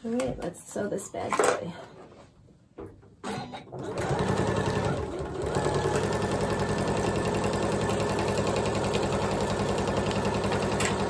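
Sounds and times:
sewing machine stitching: 3.3s - 11.0s.

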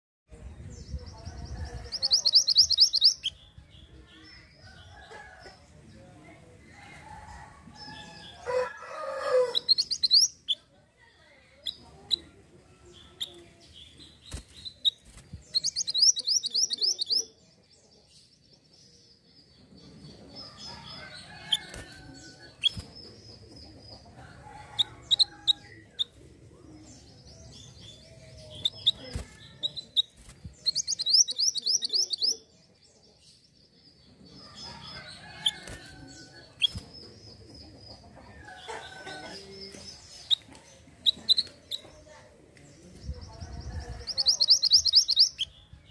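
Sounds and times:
bird high chirps: 1.5s - 3.4s, 9.4s - 10.7s, 12.9s - 17.4s, 27.4s - 32.5s, 43.1s - 45.5s.

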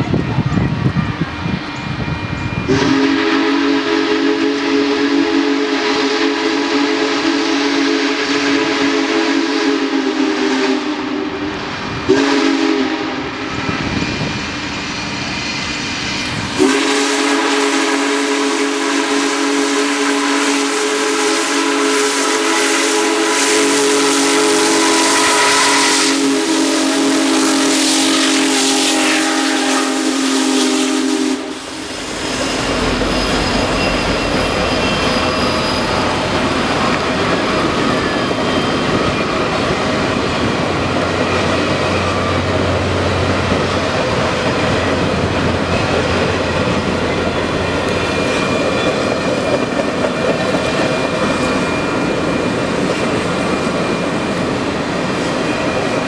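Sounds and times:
steam whistle chord: 2.6s - 11.5s, 12.1s - 13.5s, 16.5s - 36.1s
steam hissing: 2.7s - 56.0s.

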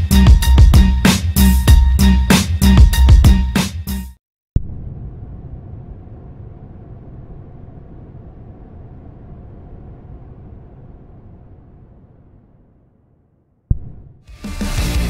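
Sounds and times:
low rumbling drone: 4.6s - 13.3s.

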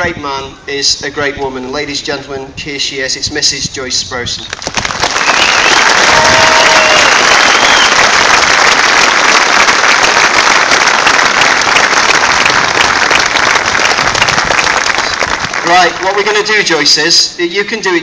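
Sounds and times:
crowd applauding: 4.5s - 16.5s.

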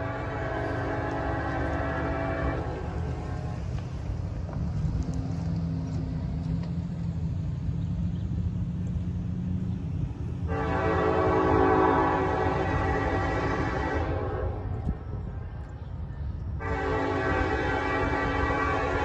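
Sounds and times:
locomotive air horn blast: 0.0s - 3.8s, 10.5s - 14.8s, 16.6s - 19.0s
freight train rumble: 0.0s - 19.0s.

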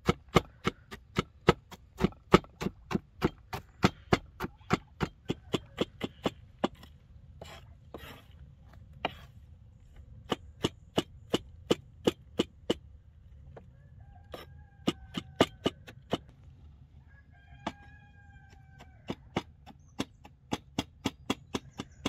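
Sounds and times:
knife chopping on wooden board: 0.0s - 6.8s.

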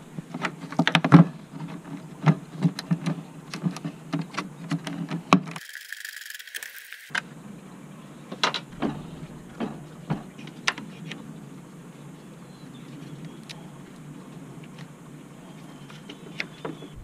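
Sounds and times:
low background hum: 6.2s - 17.0s.

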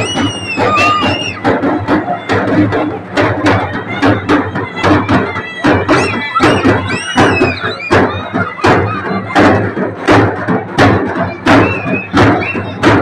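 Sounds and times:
crowd shouting: 0.0s - 10.2s
slow heavy drum beats: 0.0s - 13.0s.

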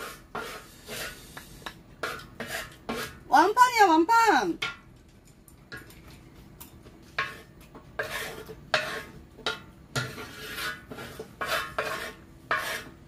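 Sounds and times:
spatulas scraping griddle pan: 0.0s - 3.5s, 7.0s - 13.0s.

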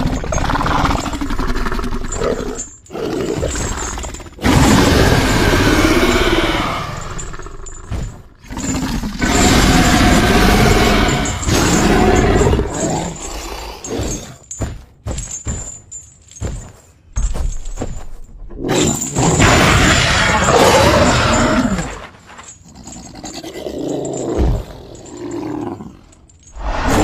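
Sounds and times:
monster roaring and growling: 0.0s - 7.7s, 8.4s - 14.2s, 18.7s - 22.0s, 26.6s - 27.0s.

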